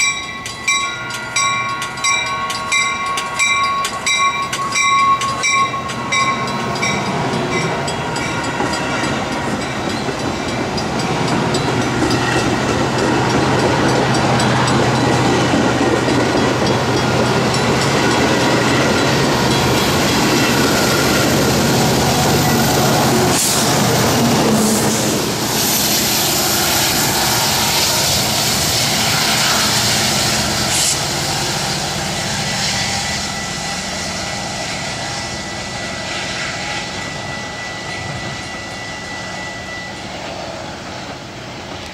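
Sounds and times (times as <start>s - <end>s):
diesel locomotive engine drone: 0.0s - 41.9s
train wheels rumbling on rail: 0.0s - 41.9s
train horn blast: 21.8s - 25.4s.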